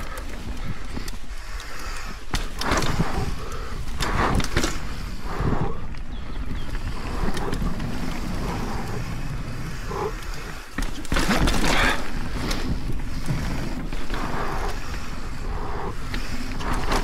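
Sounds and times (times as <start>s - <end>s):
bike rattling: 0.0s - 17.0s
tyres running over dirt: 0.0s - 17.0s
wind on microphone: 2.6s - 10.6s.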